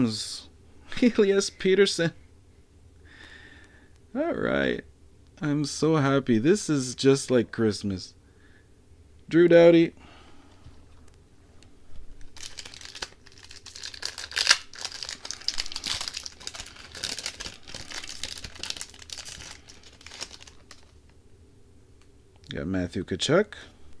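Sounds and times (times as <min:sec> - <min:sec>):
card pack wrapper crinkling: 0:12.2 - 0:21.1.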